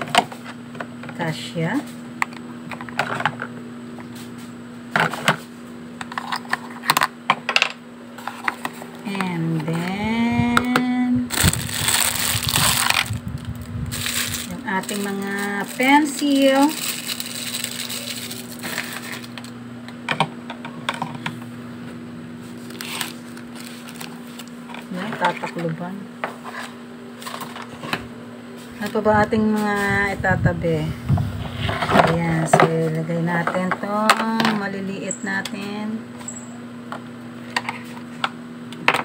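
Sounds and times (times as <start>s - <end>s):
steady low hum: 0.0s - 39.0s
plastic sleeve rustling: 11.3s - 19.6s, 22.4s - 25.4s.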